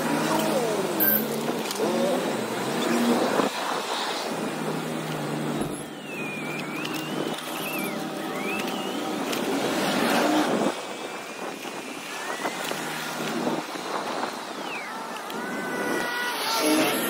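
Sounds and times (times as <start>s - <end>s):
traffic rush: 0.0s - 17.0s
high wavering whistling tone: 5.6s - 9.5s, 14.2s - 17.0s
wind noise: 8.6s - 17.0s.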